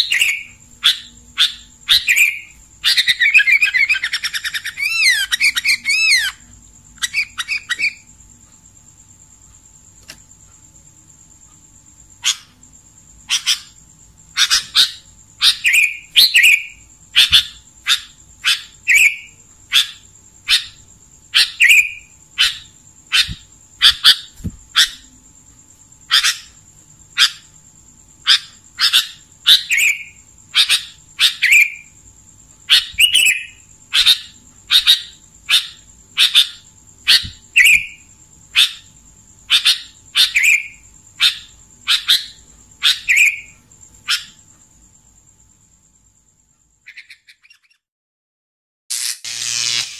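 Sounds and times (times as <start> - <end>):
bird calling: 0.0 - 8.1, 12.2 - 12.6, 13.3 - 25.1, 26.1 - 26.6, 32.6 - 38.9, 39.5 - 44.4, 46.9 - 47.8.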